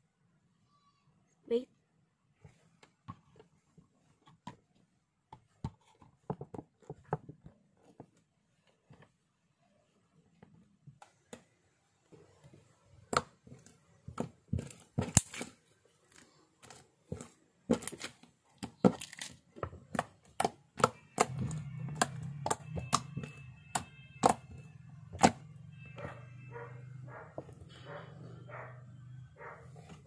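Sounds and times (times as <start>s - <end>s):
slime clicking and popping: 15.0s - 15.5s.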